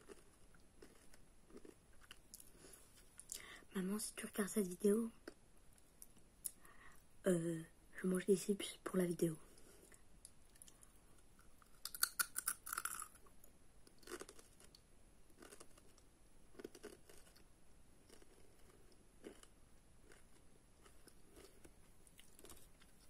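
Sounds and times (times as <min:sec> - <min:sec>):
crisp crunching while chewing: 0:00.0 - 0:02.8, 0:11.8 - 0:13.2, 0:14.0 - 0:23.0.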